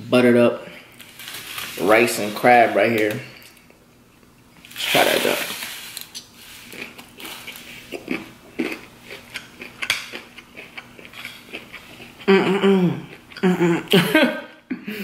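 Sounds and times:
close chewing: 0:06.2 - 0:12.3.

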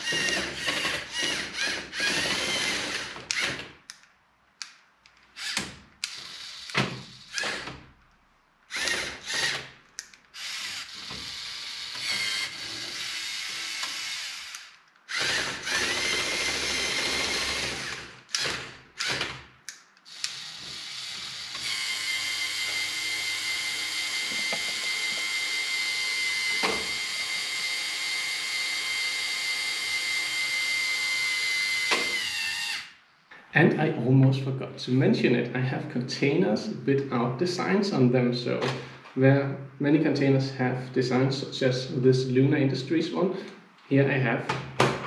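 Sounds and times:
toy electric motors whirring: 0:00.0 - 0:03.6, 0:05.3 - 0:07.7, 0:08.7 - 0:33.0.

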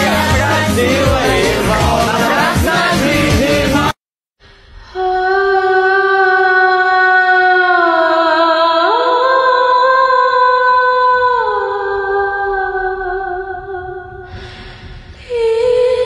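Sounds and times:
wordless vocal melody: 0:00.0 - 0:04.0.

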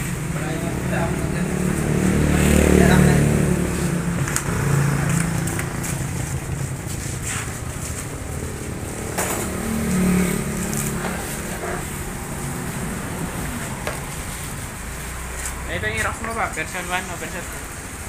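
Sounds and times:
vehicle engines rumbling: 0:00.0 - 0:18.0.

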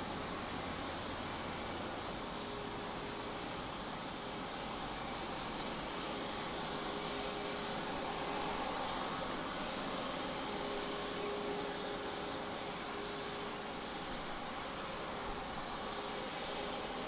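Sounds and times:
jet engines at takeoff: 0:00.0 - 0:17.0.

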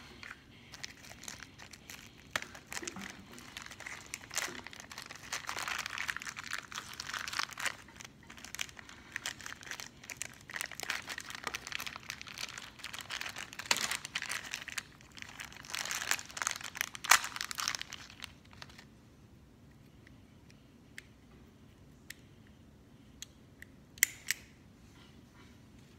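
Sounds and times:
plastic wrapper crinkling: 0:00.0 - 0:18.9.

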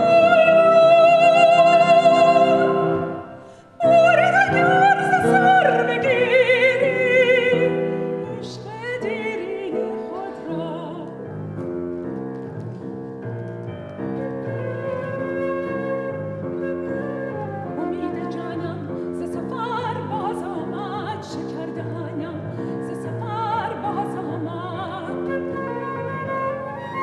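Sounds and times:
soprano singing with vibrato: 0:00.0 - 0:11.4, 0:14.0 - 0:27.0
piano accompaniment: 0:00.0 - 0:27.0
flute: 0:14.0 - 0:20.0, 0:25.0 - 0:27.0.

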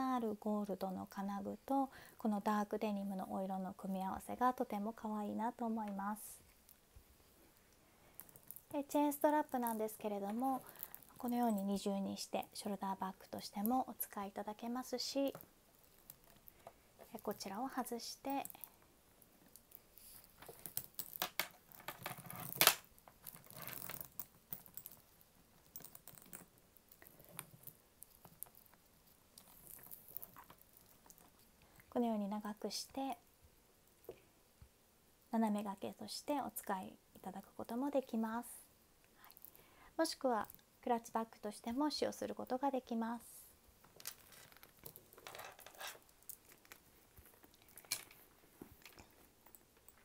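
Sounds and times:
metal chain strap clinking: 0:20.3 - 0:28.6, 0:29.4 - 0:31.3, 0:44.0 - 0:48.2.

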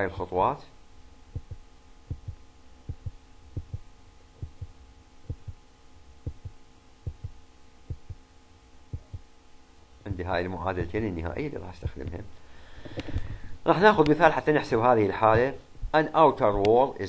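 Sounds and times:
steady electrical hum: 0:00.0 - 0:17.0
low dull thumps: 0:01.3 - 0:08.2, 0:08.9 - 0:09.3, 0:10.7 - 0:11.1, 0:11.8 - 0:12.2, 0:15.2 - 0:16.7.

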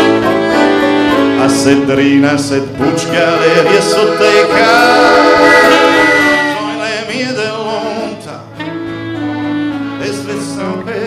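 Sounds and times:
accordion chords: 0:00.0 - 0:11.0
strummed acoustic guitars: 0:00.0 - 0:11.0.

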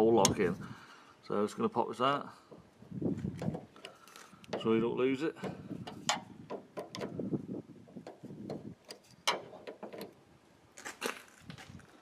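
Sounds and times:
screwdriver clicking and scraping metal: 0:05.8 - 0:07.2, 0:08.0 - 0:10.2.

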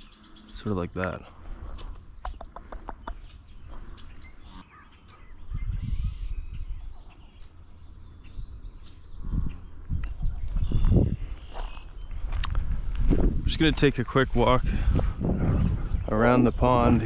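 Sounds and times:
songbirds chirping faintly: 0:00.0 - 0:17.0
low rumble on microphone: 0:05.4 - 0:17.0.

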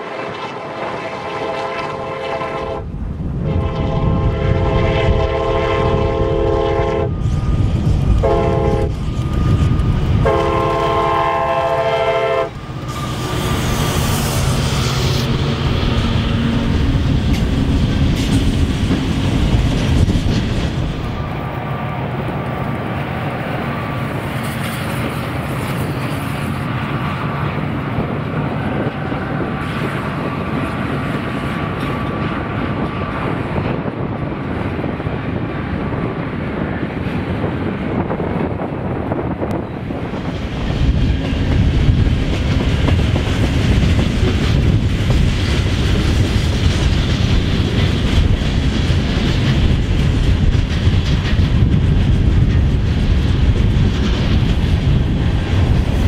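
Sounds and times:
train air horn blasts: 0:00.0 - 0:07.2, 0:08.2 - 0:09.0, 0:10.2 - 0:15.3
diesel locomotive engines working: 0:00.0 - 0:56.0
steel wheels clattering on rails: 0:07.3 - 0:56.0.

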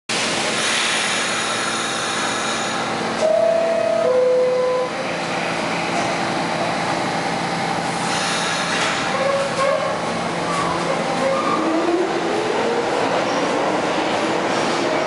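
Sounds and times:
subway train hum: 0:00.1 - 0:15.0
train doors shutting: 0:07.9 - 0:15.0.

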